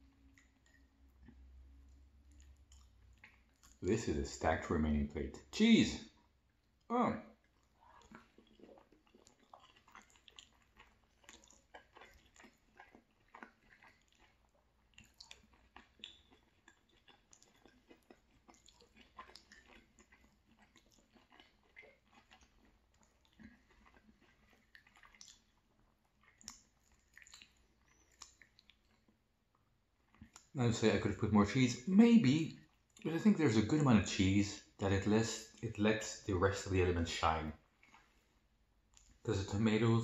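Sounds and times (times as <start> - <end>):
close-up chewing: 0.0 - 4.0, 6.1 - 30.6, 37.2 - 39.3.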